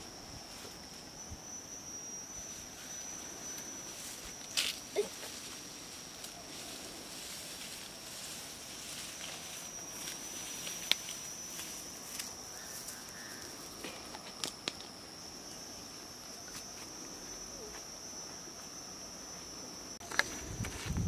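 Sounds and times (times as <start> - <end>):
high-pitched insect drone: 0.0 - 21.0
footsteps snapping through grass: 4.4 - 5.6, 6.2 - 14.9.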